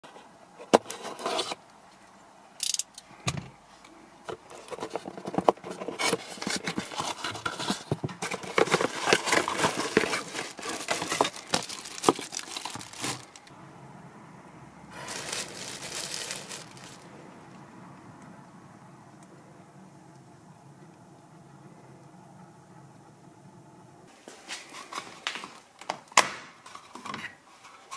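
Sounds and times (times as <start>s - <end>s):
plastic wrap crinkling: 4.5s - 13.5s, 15.0s - 17.1s
cardboard tearing: 4.6s - 13.5s, 15.0s - 17.0s.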